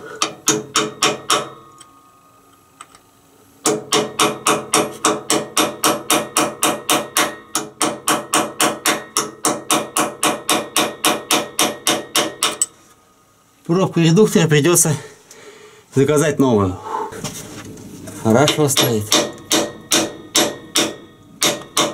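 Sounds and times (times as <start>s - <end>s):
hammer striking metal: 0.2s - 1.9s, 3.6s - 12.7s, 18.4s - 21.9s.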